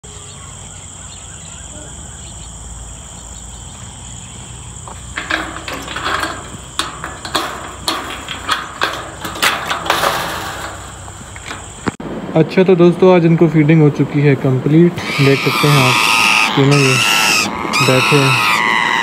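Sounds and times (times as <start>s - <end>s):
crickets chirring: 0.0s - 12.0s, 14.4s - 19.0s
sharp knocks and rattles: 4.8s - 12.0s.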